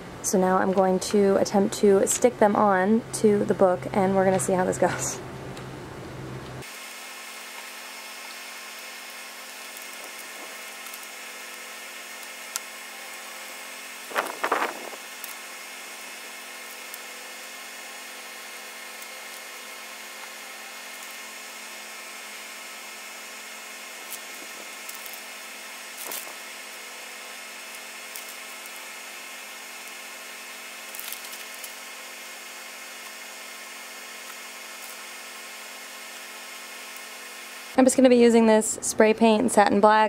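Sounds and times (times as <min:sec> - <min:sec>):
background hiss and hum: 0:00.0 - 0:40.0
plastic film rustling and tapping: 0:26.0 - 0:26.4.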